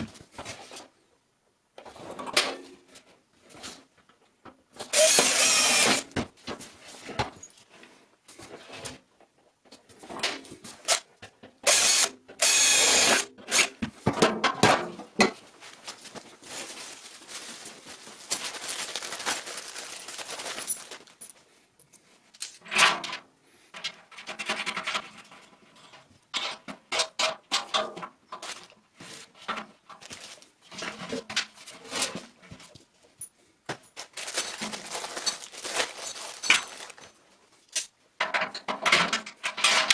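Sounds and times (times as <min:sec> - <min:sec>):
plastic bag crinkling: 0:15.7 - 0:21.3, 0:34.0 - 0:37.2.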